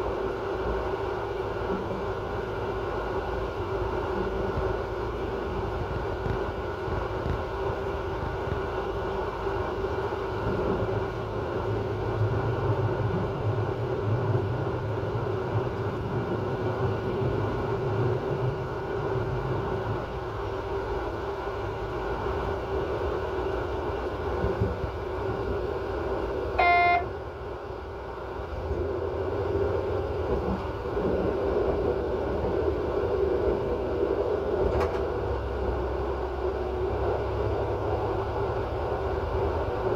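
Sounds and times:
constant hum: 0.0s - 39.9s
short high tone: 26.6s - 27.1s.

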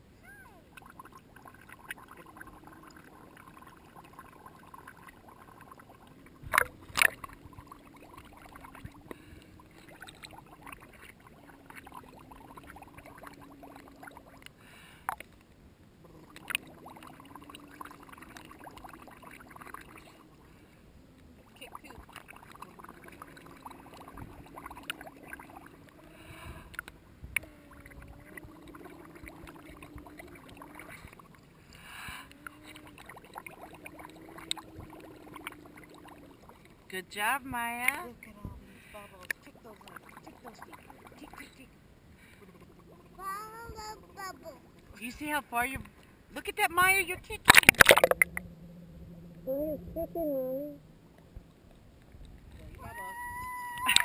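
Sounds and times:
muffled water sloshing and gurgling: 0.0s - 54.0s
bubbles being blown: 0.7s - 14.5s, 16.1s - 20.3s, 21.8s - 26.1s, 27.4s - 31.4s, 32.4s - 36.6s, 47.5s - 48.6s, 49.4s - 50.8s, 53.8s - 54.0s
sharp knocks or splashes: 47.4s - 48.4s.

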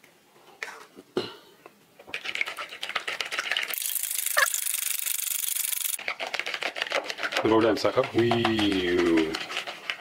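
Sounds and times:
whisk beating eggs in plastic bowl: 6.0s - 10.0s.

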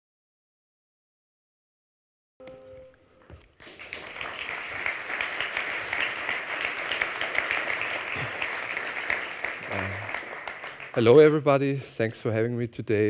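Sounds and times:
audience applauding: 3.6s - 11.6s.

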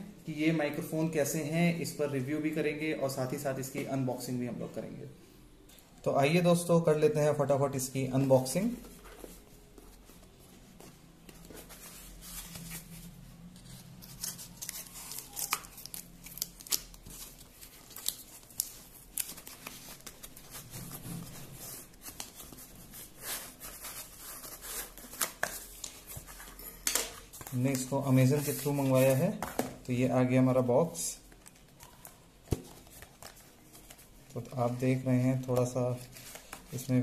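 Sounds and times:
packaging rustling: 8.5s - 29.4s, 31.2s - 37.0s.

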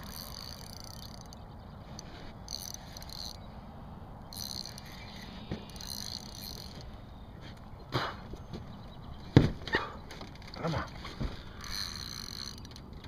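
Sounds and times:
fishing reel whirring: 0.0s - 3.5s, 4.2s - 6.8s, 11.5s - 13.0s.

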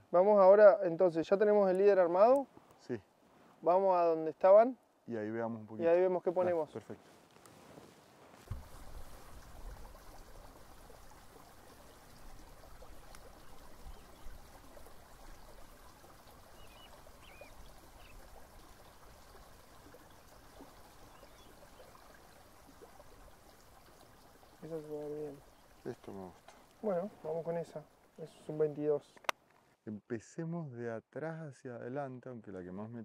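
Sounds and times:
river water flowing: 8.5s - 29.0s
faint bird chirps: 16.4s - 18.3s, 20.0s - 22.0s.

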